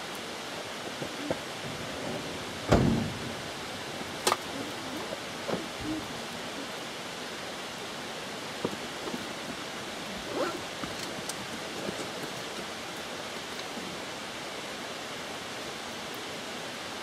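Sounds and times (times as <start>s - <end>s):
outdoor rushing hiss: 0.0s - 17.0s.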